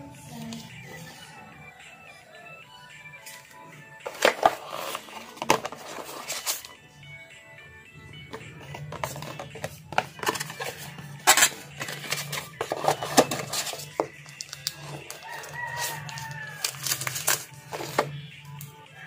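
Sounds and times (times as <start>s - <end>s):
packaging rustling and crinkling: 4.0s - 6.7s, 8.9s - 18.1s.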